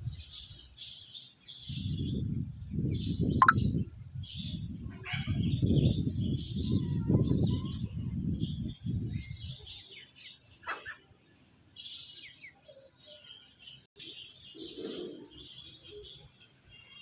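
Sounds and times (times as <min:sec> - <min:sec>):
birds chirping: 0:03.0 - 0:17.0.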